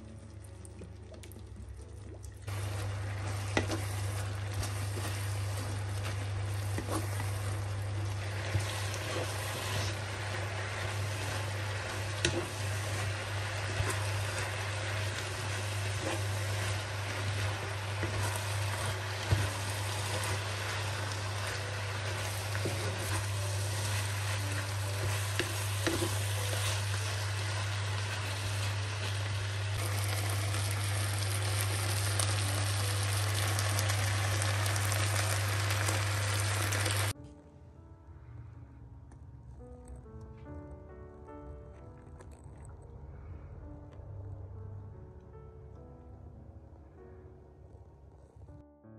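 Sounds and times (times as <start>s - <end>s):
noodles sizzling in frying pan: 2.4s - 37.2s.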